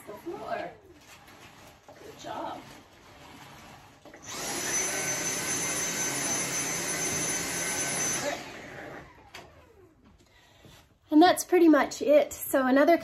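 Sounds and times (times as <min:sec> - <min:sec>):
vacuum cleaner motor whining: 0:00.0 - 0:10.3.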